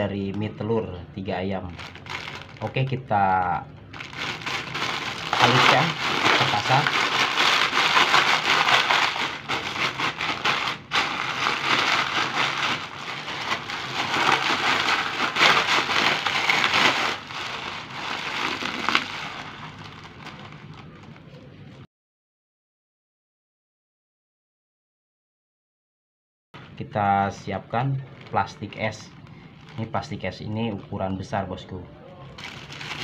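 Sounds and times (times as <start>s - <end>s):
dry noodles crackling: 1.7s - 2.9s, 3.9s - 21.8s, 28.1s - 30.9s, 32.4s - 33.0s
plastic wrapper crinkling: 1.7s - 3.0s, 3.9s - 21.8s, 28.0s - 31.0s, 32.4s - 33.0s.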